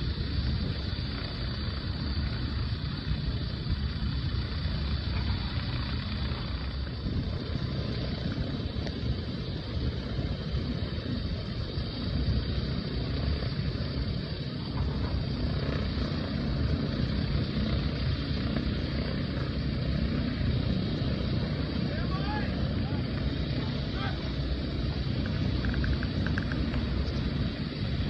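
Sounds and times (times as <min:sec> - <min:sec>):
airship engines and propellers: 0:00.0 - 0:28.0.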